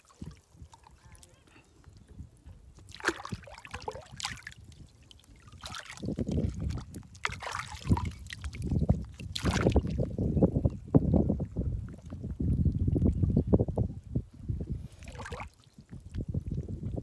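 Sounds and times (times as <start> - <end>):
water splashing and trickling: 0.0 - 13.7, 14.8 - 17.0
low water sloshing: 2.4 - 10.1.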